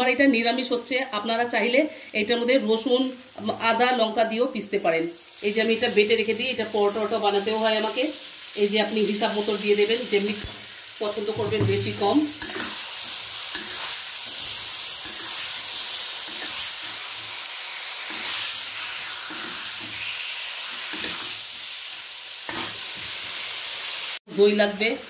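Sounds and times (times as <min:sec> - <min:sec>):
food sizzling in oil: 0:00.0 - 0:25.0
metal spatula scraping pan: 0:11.4 - 0:17.0, 0:20.8 - 0:21.4, 0:22.5 - 0:23.1.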